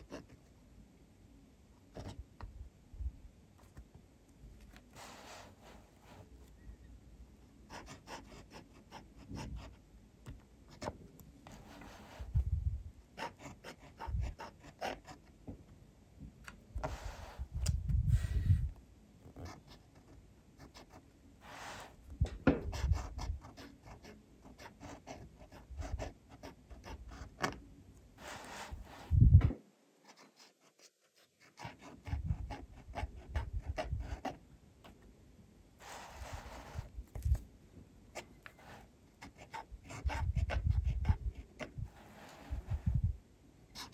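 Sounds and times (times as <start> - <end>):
pen nib scratching on paper: 13.2 - 15.2, 30.0 - 34.4, 35.8 - 37.4, 38.2 - 42.9.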